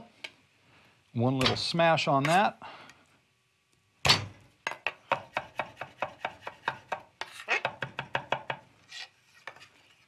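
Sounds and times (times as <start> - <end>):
knife chopping on wooden board: 5.1 - 8.6.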